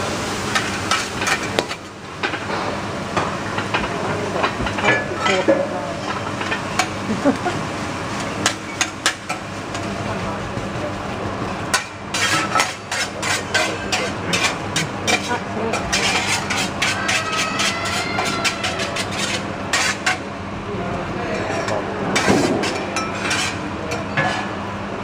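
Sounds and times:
metal spatulas scraping griddle: 11.7s - 20.2s, 21.5s - 24.6s.

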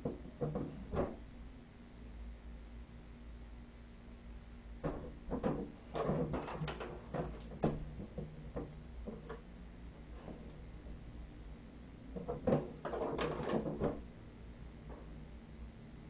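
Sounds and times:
pet door flap knocking and clattering: 4.8s - 9.4s, 12.2s - 14.0s.

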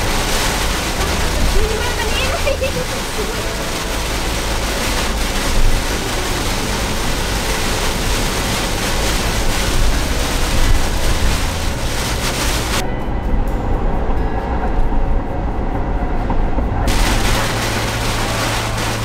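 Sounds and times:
heavy rain on vehicle windshield: 0.0s - 12.8s, 16.9s - 19.0s
road and engine rumble: 0.0s - 19.0s.

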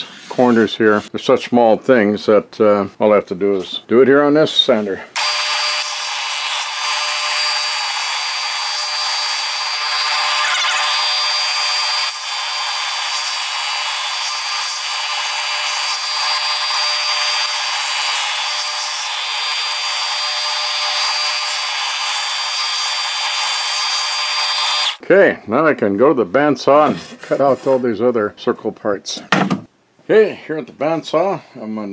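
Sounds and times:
belt sander high whine: 5.9s - 21.0s.

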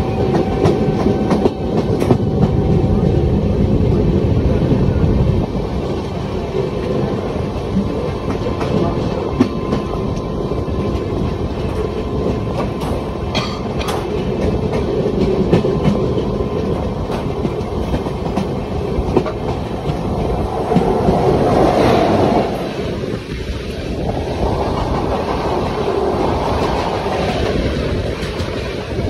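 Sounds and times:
passing train rush: 0.0s - 29.0s
train wheels rumbling on rail: 0.0s - 29.0s.

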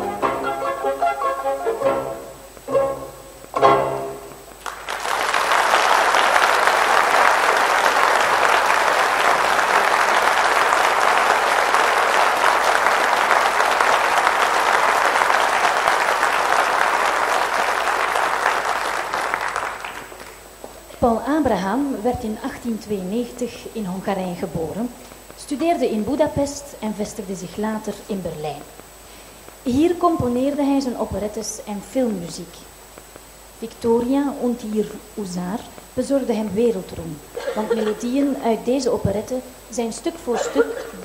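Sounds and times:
chamber orchestra playing chords: 0.0s - 4.5s
audience applause: 4.6s - 20.5s.

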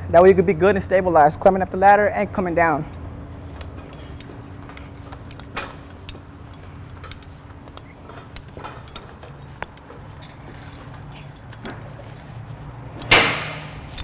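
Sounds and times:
steady low hum: 0.0s - 14.0s
harness hooks clinking on metal: 3.6s - 11.8s, 12.9s - 14.0s.

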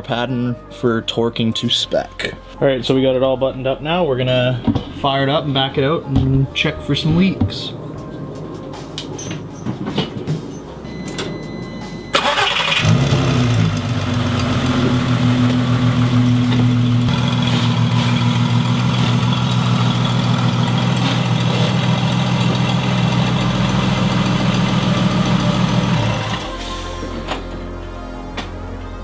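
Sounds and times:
car engine cranking and idling: 10.6s - 26.8s.

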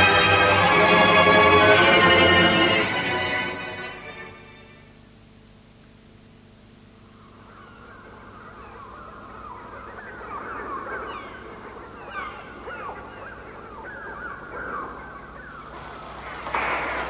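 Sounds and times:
electronic bird cries: 7.1s - 17.0s.

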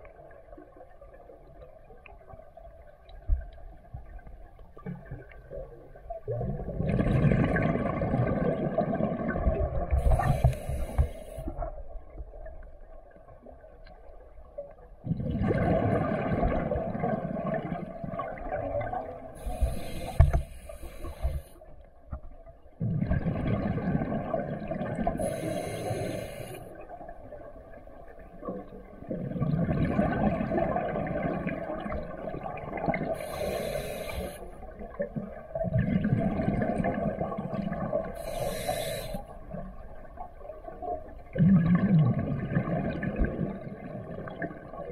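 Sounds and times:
gurgling exhaust bubbles underwater: 0.0s - 13.8s, 14.4s - 21.7s, 22.6s - 44.9s
regulator hiss: 19.4s - 21.5s, 25.2s - 26.6s, 33.2s - 34.5s, 38.2s - 39.3s.

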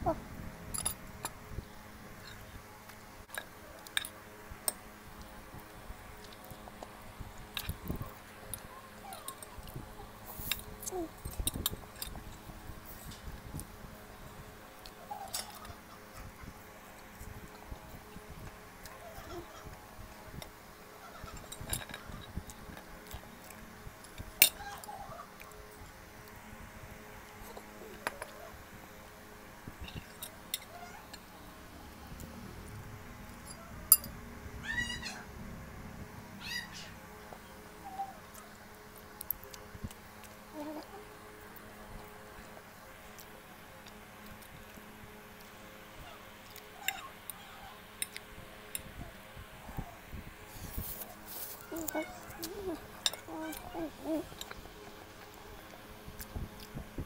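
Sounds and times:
soft eating clicks: 38.2s - 49.0s, 51.6s - 57.0s.

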